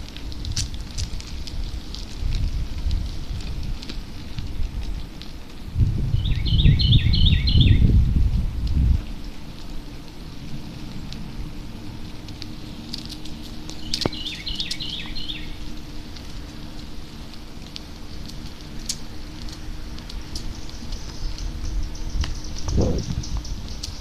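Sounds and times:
bicycle rolling on pavement: 0.0 - 24.0
light ticks: 12.0 - 24.0.

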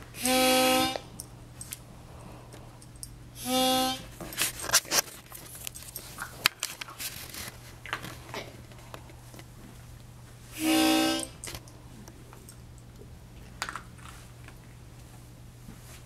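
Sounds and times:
harmonica low note: 0.0 - 1.1, 3.4 - 4.1, 10.6 - 11.5.

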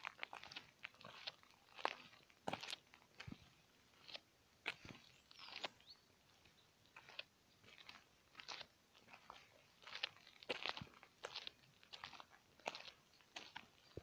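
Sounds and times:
footsteps on grass and leaves: 0.0 - 14.0.

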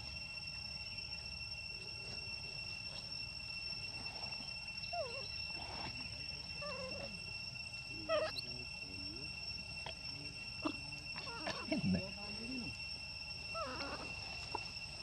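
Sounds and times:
high-pitched insect drone: 0.0 - 15.0
monkeys squeaky calls: 8.1 - 8.5.

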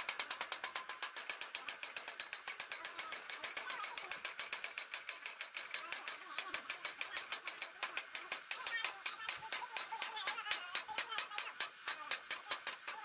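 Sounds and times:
hammer tapping on metal: 0.0 - 13.0.

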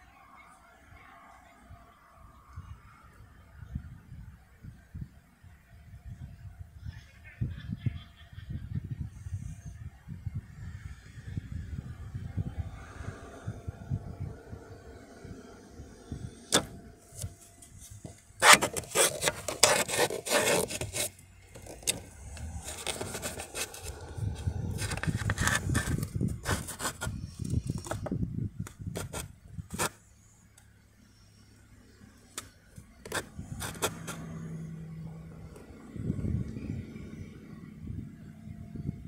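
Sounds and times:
phone handling rubbing and scraping: 16.5 - 30.0, 32.4 - 34.4.

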